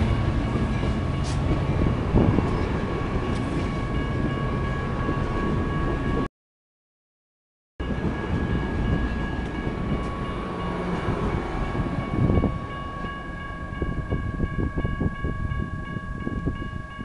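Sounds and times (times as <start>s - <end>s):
train wheels rumbling on rails: 0.0s - 6.3s, 7.8s - 17.0s
electronic crossing bell: 7.8s - 17.0s.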